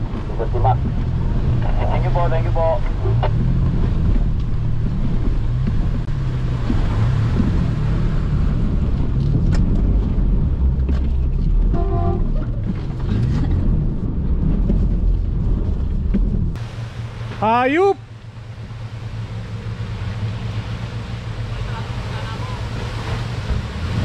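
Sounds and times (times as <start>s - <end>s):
car engine revving: 0.0s - 17.5s, 18.3s - 24.0s
water splashing: 0.0s - 24.0s
car horn toot: 11.7s - 12.4s.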